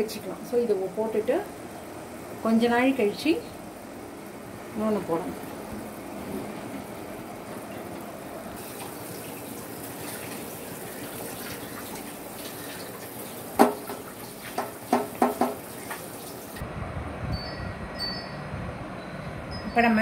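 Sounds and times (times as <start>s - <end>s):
syrup boiling in a pot: 7.0s - 16.6s
short sharp knocks: 14.6s - 15.6s.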